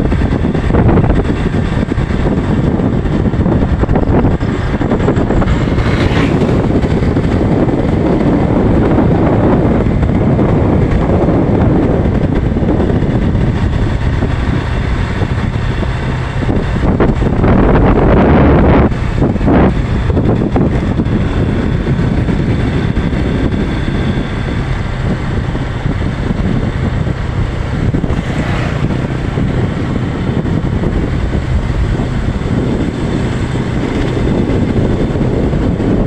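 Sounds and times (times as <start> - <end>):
motorcycle engine: 0.0 - 36.0
road noise: 0.0 - 36.0
wind rush on microphone: 0.0 - 36.0.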